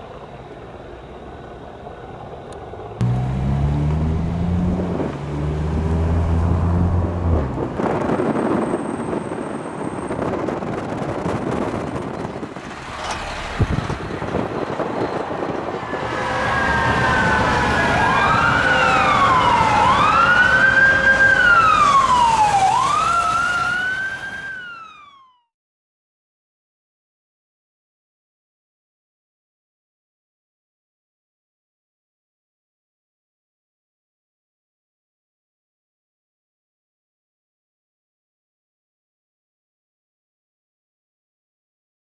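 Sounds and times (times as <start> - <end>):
traffic noise: 0.0 - 25.0
heavy vehicle engine revving: 3.0 - 8.6, 12.4 - 15.0
fire engine siren wailing: 3.0 - 10.4, 13.0 - 25.5.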